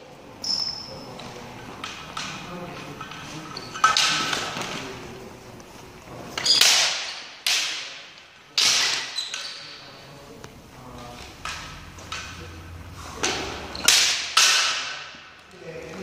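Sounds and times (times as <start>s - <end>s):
bamboo swords striking: 6.4s - 9.2s, 13.2s - 15.4s.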